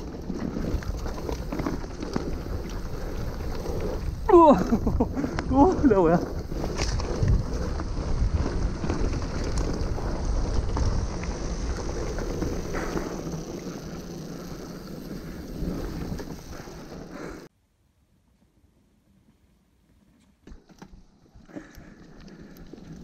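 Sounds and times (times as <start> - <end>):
wind buffeting microphone: 0.0 - 13.6
bike tyres rattling on dirt trail: 0.0 - 17.5, 19.8 - 23.0.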